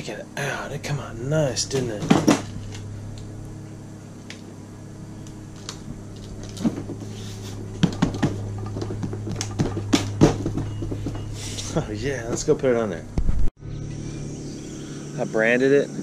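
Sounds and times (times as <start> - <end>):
low hum: 0.0 - 16.0
hand rubbing a seat: 6.1 - 12.5.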